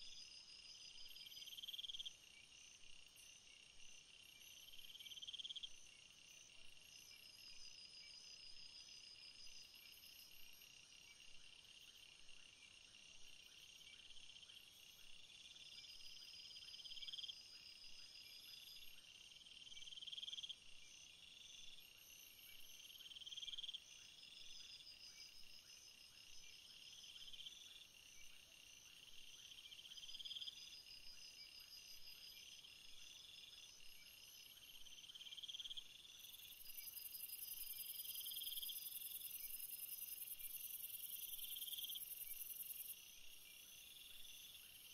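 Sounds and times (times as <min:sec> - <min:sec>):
crickets chirping: 0:00.0 - 0:44.9.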